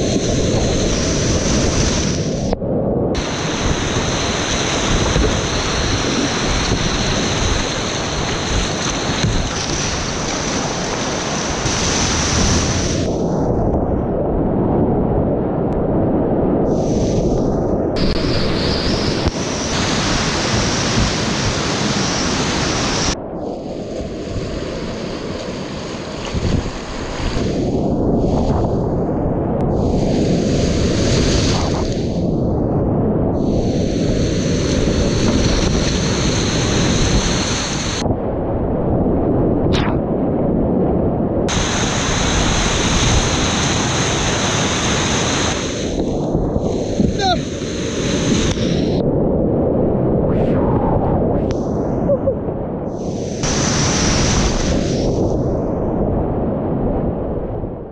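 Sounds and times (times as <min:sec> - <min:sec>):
wind on microphone: 0:00.0 - 0:57.9
whitewater rushing and splashing: 0:03.2 - 0:13.1, 0:18.0 - 0:23.2, 0:33.7 - 0:38.0, 0:41.5 - 0:49.0, 0:53.1 - 0:55.2.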